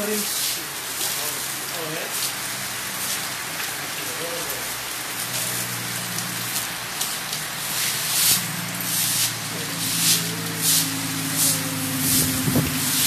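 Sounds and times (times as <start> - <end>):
heavy rain falling: 0.0 - 13.0
loud swishes: 8.2 - 13.0.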